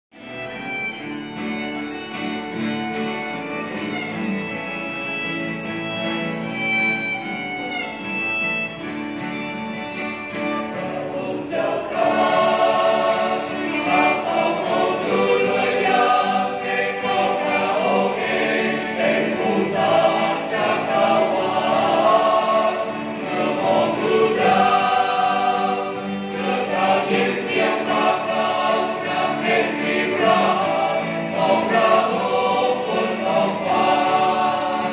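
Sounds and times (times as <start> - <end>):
violin melody: 0.1 - 34.9
strummed acoustic guitars: 0.2 - 34.9
choir singing a hymn: 9.3 - 34.9.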